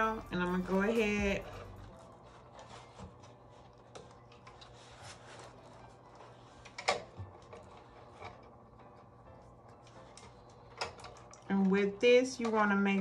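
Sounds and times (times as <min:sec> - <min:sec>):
paper rustling: 0:00.6 - 0:08.4.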